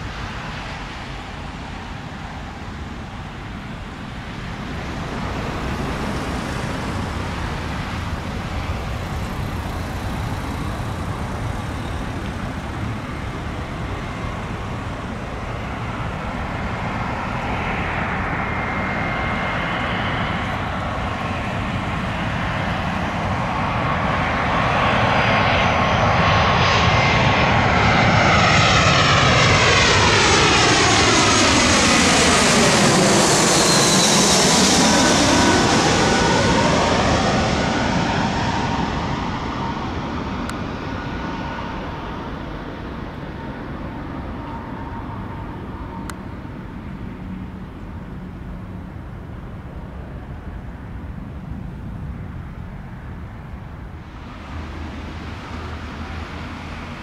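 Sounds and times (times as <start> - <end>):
jet airliner passing overhead: 0.0 - 57.0
thin engine whine: 4.2 - 47.9.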